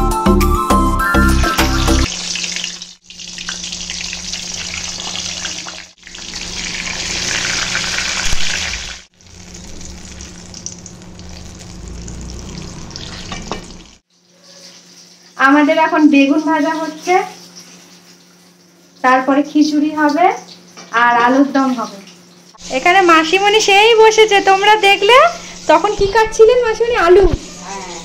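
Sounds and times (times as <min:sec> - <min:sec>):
food sizzling in hot oil: 0:01.4 - 0:27.7.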